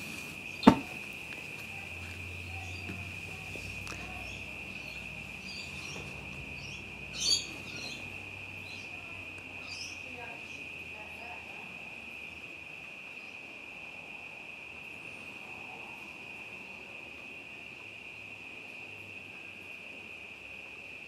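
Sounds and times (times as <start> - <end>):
high insect trilling: 0.0 - 12.4.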